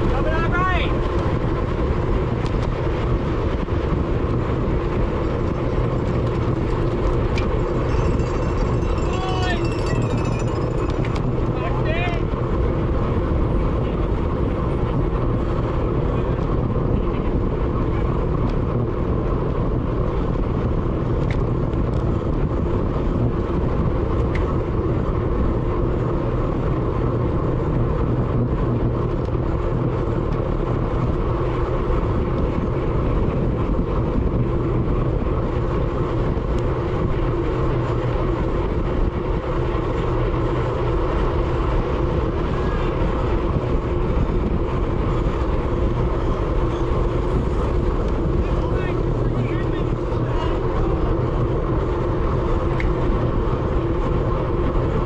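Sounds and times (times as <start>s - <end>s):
road noise: 0.0s - 55.0s
wind rushing on microphone: 0.0s - 55.0s.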